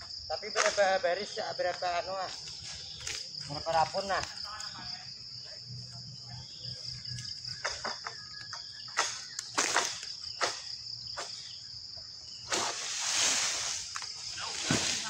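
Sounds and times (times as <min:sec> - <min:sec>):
insects droning: 0:00.0 - 0:15.0
leaves rustling: 0:12.4 - 0:15.0
sharp scraping strokes: 0:12.5 - 0:15.0.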